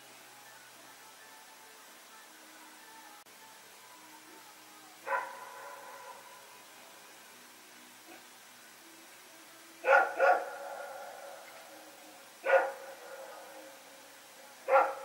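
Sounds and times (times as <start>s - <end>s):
dog barking with echo: 5.0s - 6.4s, 9.8s - 11.4s, 12.4s - 13.7s, 14.6s - 15.0s.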